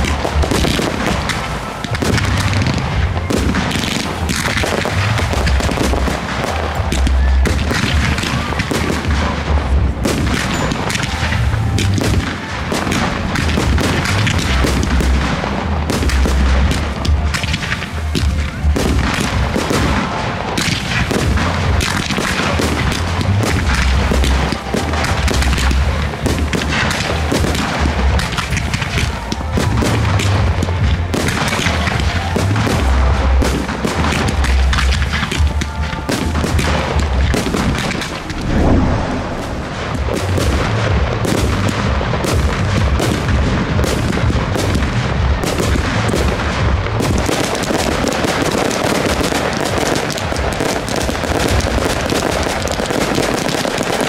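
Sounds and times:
firework crackle: 0:00.0 - 0:54.0
firework launch thumps: 0:37.5 - 0:41.6.

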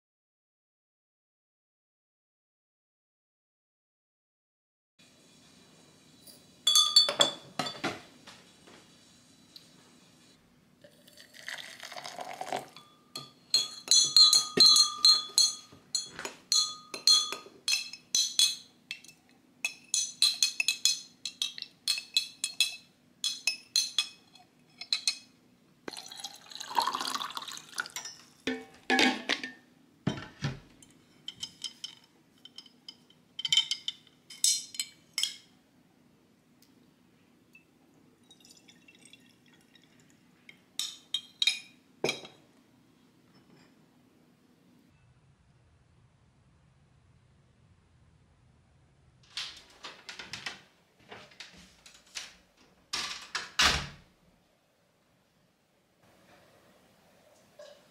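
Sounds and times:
spoon clinking against glass: 0:06.3 - 0:07.8, 0:11.4 - 0:25.3, 0:25.9 - 0:29.6, 0:30.8 - 0:35.5, 0:40.8 - 0:42.4
water pouring into glass: 0:10.8 - 0:12.8, 0:25.9 - 0:28.1, 0:38.2 - 0:40.2.

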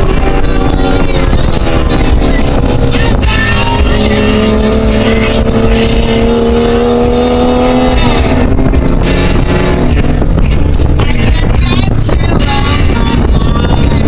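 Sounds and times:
car engine pulling hard: 0:00.0 - 0:14.0
road noise rumble: 0:00.0 - 0:14.0.

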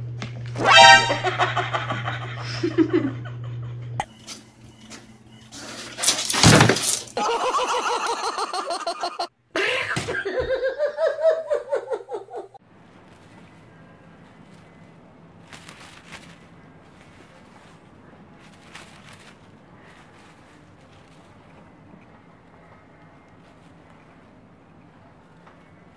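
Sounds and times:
people laughing: 0:00.8 - 0:04.0, 0:07.2 - 0:12.6.

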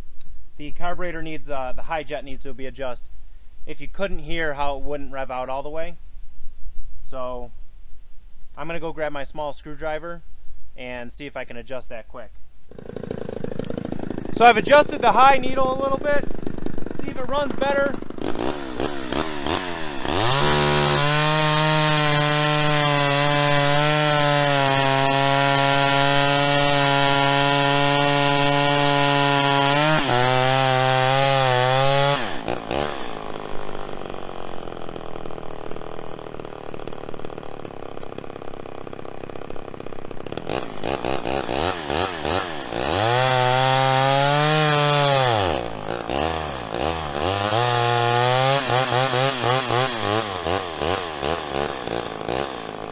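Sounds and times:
chainsaw cutting log: 0:12.7 - 0:52.9.

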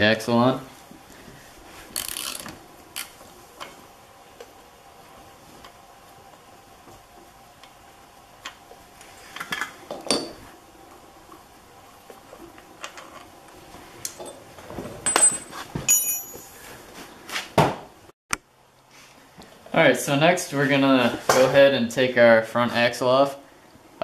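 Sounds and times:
short metallic ring: 0:15.1 - 0:16.6.

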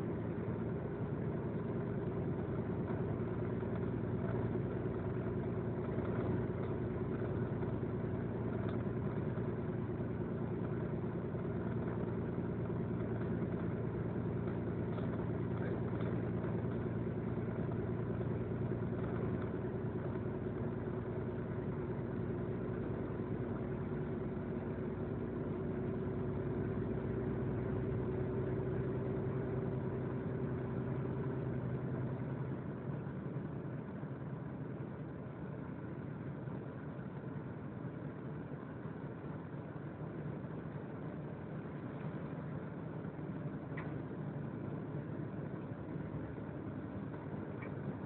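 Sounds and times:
vehicle engine and road noise: 0:00.0 - 0:48.0.

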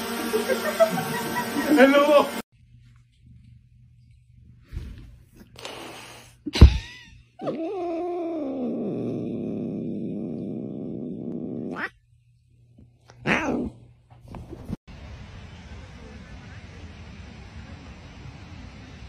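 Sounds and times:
cat growling: 0:07.4 - 0:12.1, 0:13.1 - 0:13.9.

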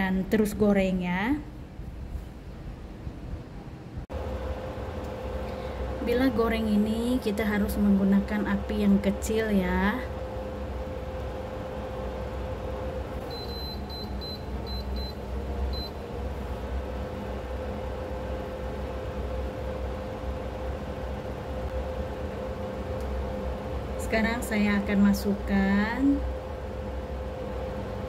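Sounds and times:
electric cooktop humming: 0:04.0 - 0:28.0
cooktop control panel beeps: 0:13.2 - 0:16.0.

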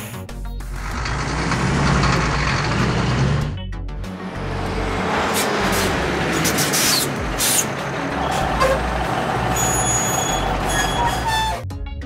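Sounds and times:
truck engine rumble: 0:00.4 - 0:11.6
air brake hiss bursts: 0:05.3 - 0:07.7.

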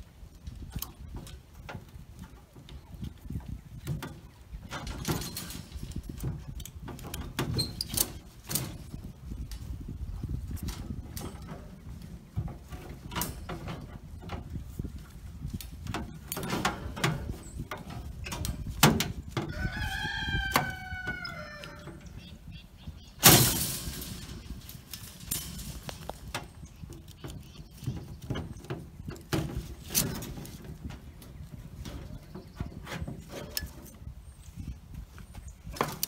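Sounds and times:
metal clanks and knocks: 0:00.7 - 0:22.3, 0:23.2 - 0:34.8
rooster crowing: 0:19.5 - 0:22.0
sharp metal bang: 0:23.2 - 0:24.5.

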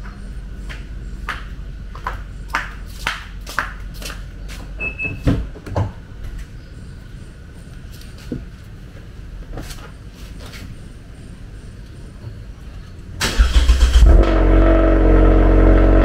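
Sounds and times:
flip-flop footsteps on concrete: 0:00.0 - 0:04.8
steady low hum: 0:00.0 - 0:16.0.

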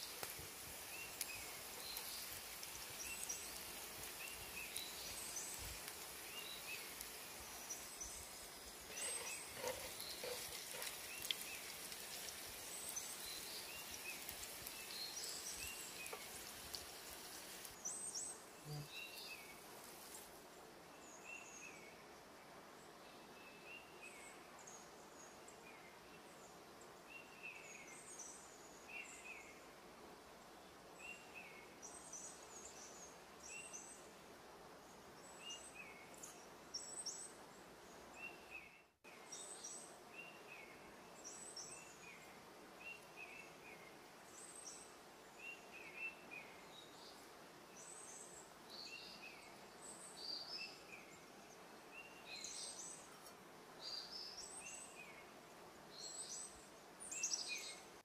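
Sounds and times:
birds chirping: 0:00.0 - 0:20.2
faint ambient hiss: 0:00.0 - 0:58.0.

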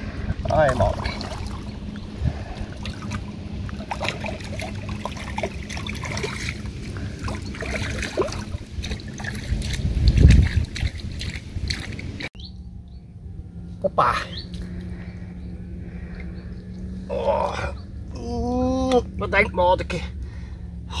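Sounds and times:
low swirl of water: 0:00.0 - 0:13.8
water splashing and trickling: 0:00.2 - 0:12.4.

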